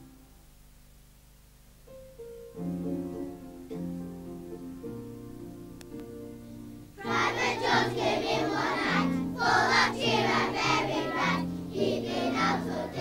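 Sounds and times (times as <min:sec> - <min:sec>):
instrumental backing music: 0:01.7 - 0:13.0
children's choir singing: 0:07.0 - 0:13.0.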